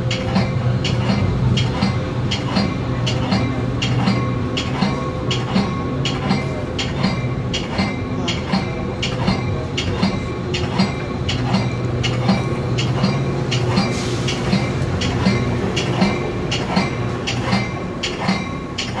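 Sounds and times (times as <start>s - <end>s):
moving train hum: 0.0s - 19.0s
train bell ringing: 0.0s - 19.0s.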